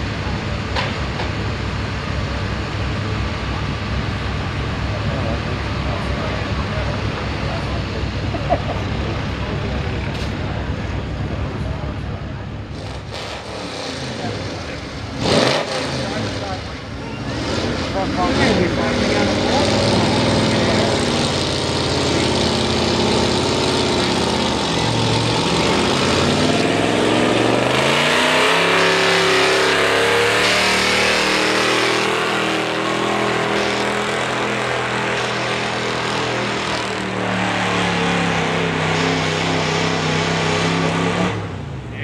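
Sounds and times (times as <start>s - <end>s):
truck engine under load: 0.0s - 42.0s.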